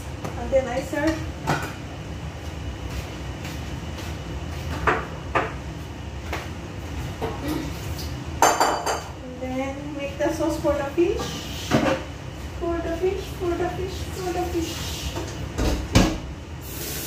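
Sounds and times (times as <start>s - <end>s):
cookware knocks and clinks: 8.4s - 9.1s.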